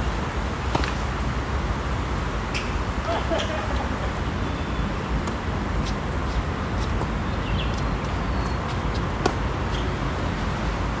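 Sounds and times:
tennis ball bouncing: 0:00.7 - 0:01.0, 0:05.2 - 0:09.8
racket hitting tennis ball: 0:08.7 - 0:09.8.

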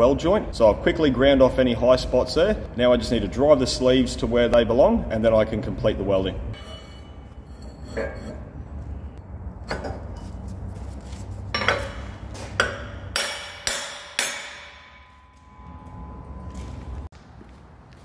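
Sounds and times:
hammer striking steel: 0:06.5 - 0:08.5, 0:11.5 - 0:17.1.

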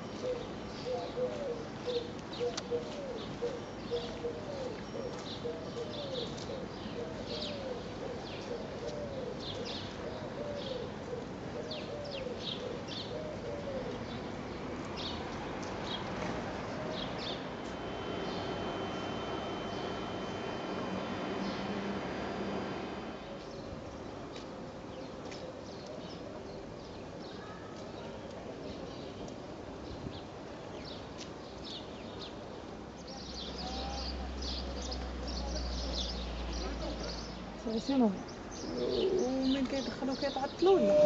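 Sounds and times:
pigeons cooing: 0:00.2 - 0:14.2, 0:38.6 - 0:39.9, 0:40.6 - 0:41.0
steady high tone: 0:17.2 - 0:23.4
small birds chirping: 0:33.0 - 0:41.0.

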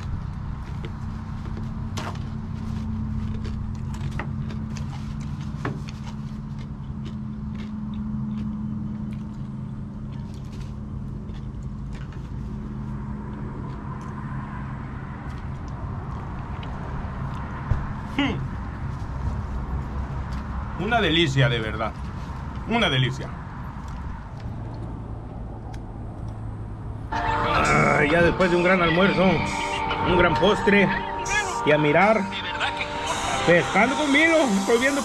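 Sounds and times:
low mechanical hum: 0:00.0 - 0:20.8.

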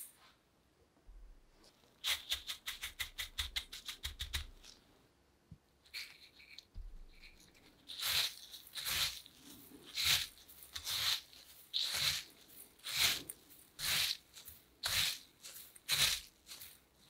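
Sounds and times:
breadcrumbs rustling and crackling: 0:05.8 - 0:17.0.

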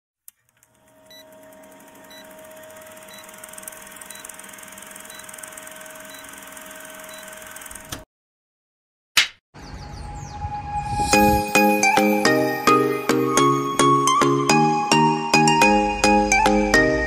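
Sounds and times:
film projector clattering: 0:00.6 - 0:08.0.

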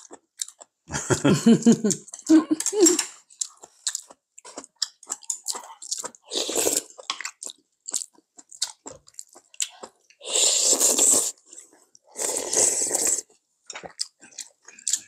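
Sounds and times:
chewing: 0:00.0 - 0:00.8, 0:01.9 - 0:15.0
slurping soup from spoon: 0:06.2 - 0:07.1, 0:10.2 - 0:13.4.

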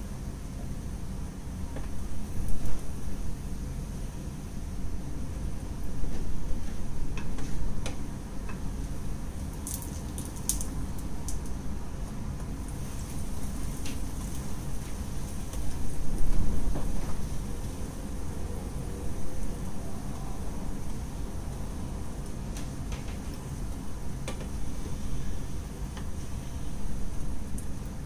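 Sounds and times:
bread frying with sharp pops: 0:09.4 - 0:11.6, 0:12.4 - 0:15.7.

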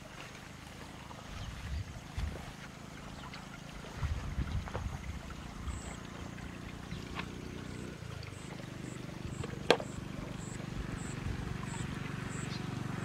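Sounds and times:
bucket handle clink: 0:09.4 - 0:10.0.

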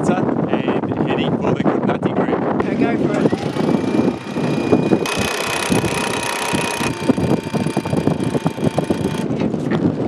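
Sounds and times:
electric winch motor whine: 0:02.6 - 0:09.3.

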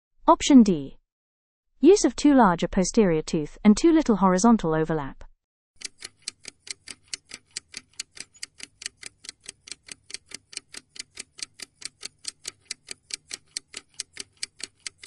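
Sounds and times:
clock ticking: 0:05.8 - 0:15.0.

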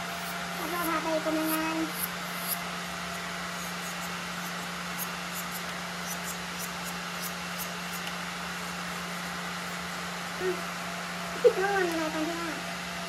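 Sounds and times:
nail drill motor hum: 0:00.0 - 0:10.4.

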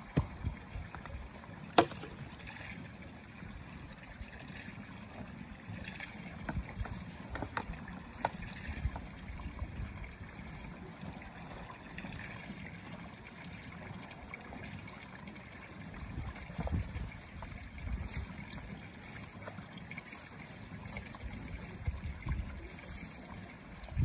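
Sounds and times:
wind rumble on microphone: 0:06.3 - 0:10.8, 0:16.0 - 0:19.3, 0:20.8 - 0:24.0.

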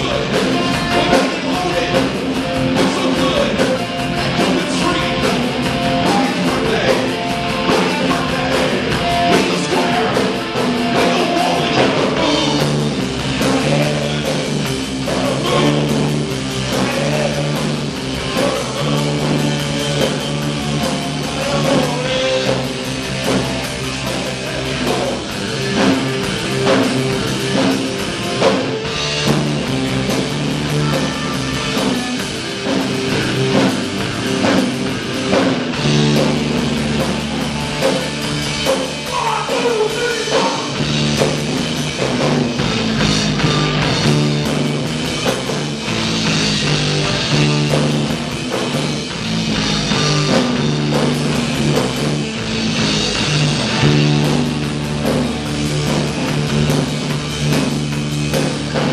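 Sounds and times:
person singing: 0:00.0 - 0:22.8, 0:39.0 - 0:40.8
bass line: 0:00.0 - 0:58.9
drum kit: 0:00.0 - 0:58.9
electric guitar: 0:00.0 - 0:58.9.

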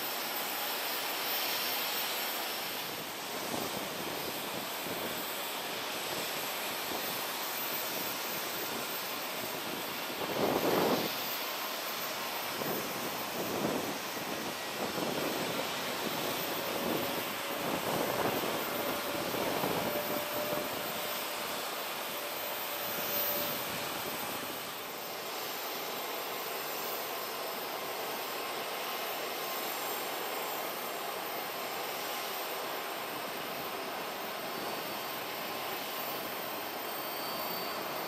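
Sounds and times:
faint steady whine: 0:00.0 - 0:38.0
jet engines rushing: 0:00.0 - 0:38.0.

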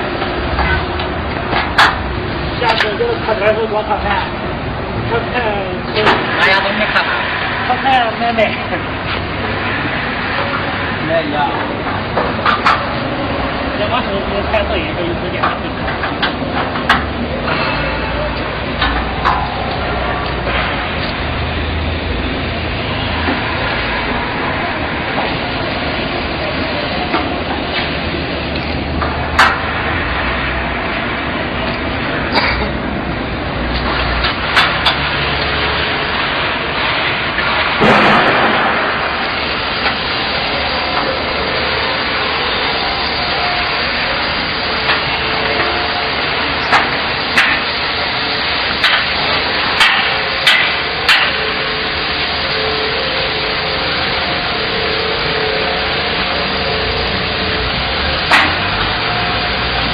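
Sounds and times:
steady background noise: 0:00.0 - 0:59.9
steady rushing background noise: 0:00.0 - 0:59.9
hammer striking steel frame: 0:15.4 - 0:21.0, 0:28.9 - 0:30.4, 0:33.8 - 0:35.7, 0:37.5 - 0:40.1, 0:46.6 - 0:47.8, 0:48.7 - 0:51.7, 0:56.8 - 0:59.9.

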